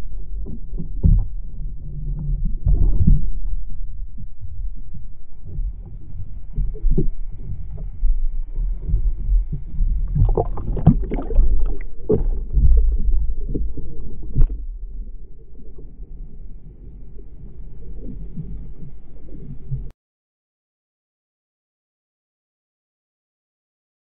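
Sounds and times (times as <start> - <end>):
low wash of water: 0.0 - 19.9
muffled underwater sloshing and thudding: 0.0 - 19.9
water splashes: 5.4 - 19.9.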